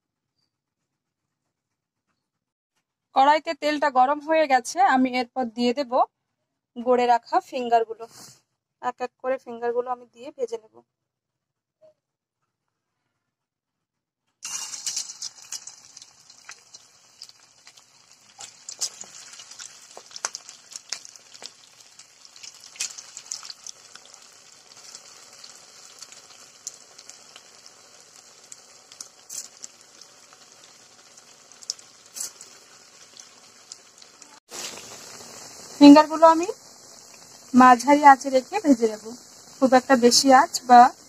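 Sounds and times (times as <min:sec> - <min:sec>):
oil sizzling with crackles and pops: 0:14.4 - 0:41.0.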